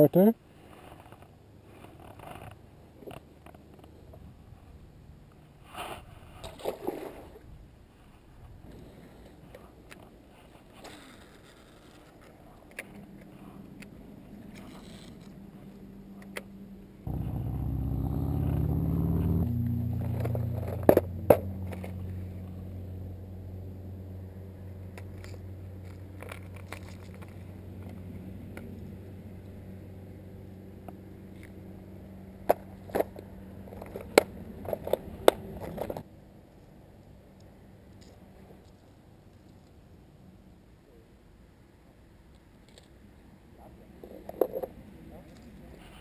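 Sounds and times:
steady motor drone: 17.1 - 26.3.

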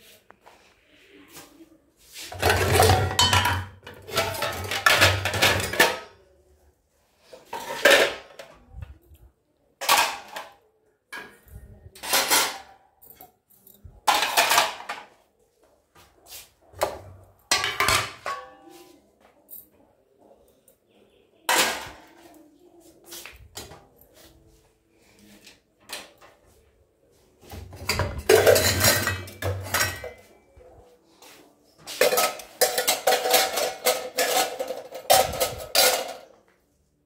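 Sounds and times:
metal dishes clattering in rack: 2.3 - 6.2, 7.5 - 8.5, 9.8 - 10.6, 12.0 - 12.7, 14.0 - 15.1, 17.5 - 18.6, 27.6 - 30.3, 31.9 - 36.3.

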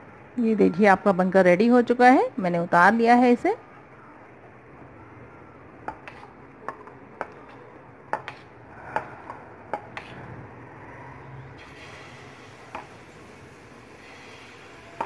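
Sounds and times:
batter sizzling on hot pan: 11.6 - 15.0.

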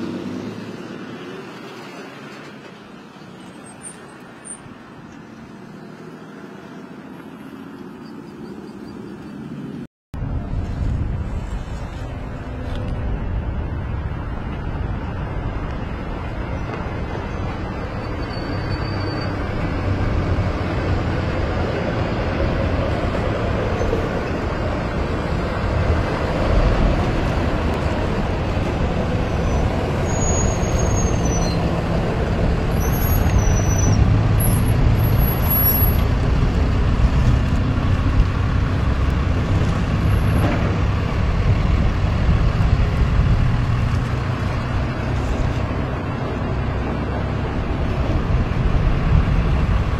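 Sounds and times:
heavy trucks driving past: 0.0 - 49.9
short high squeals: 18.0 - 19.5, 29.3 - 31.7, 32.7 - 36.0.

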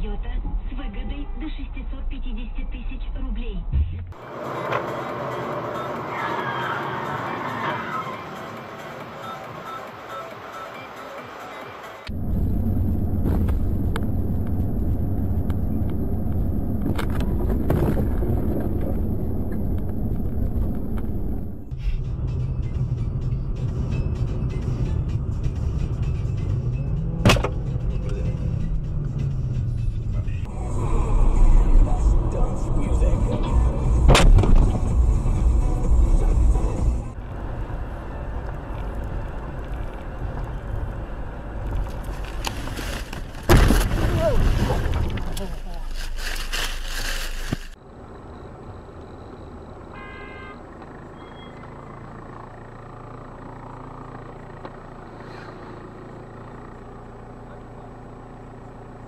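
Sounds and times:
car engine and tyres rumbling: 0.0 - 59.0
loud rumble: 12.1 - 22.3, 29.8 - 42.5.

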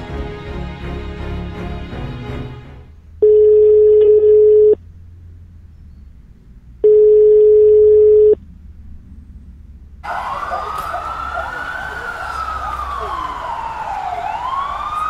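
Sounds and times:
telephone ringback tone: 3.2 - 4.8, 6.8 - 8.4.

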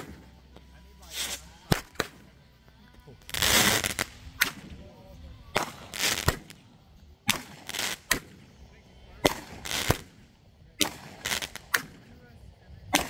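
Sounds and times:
firework bangs: 0.0 - 0.4, 1.0 - 2.3, 3.2 - 4.8, 5.5 - 8.6, 9.2 - 12.2
firework shells launching hiss: 0.0 - 13.0.

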